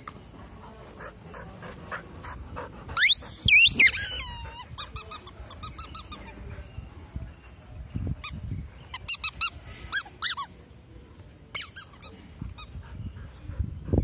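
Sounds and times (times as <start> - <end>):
squeaky toy ball squeaking: 3.0 - 6.4, 11.6 - 12.7.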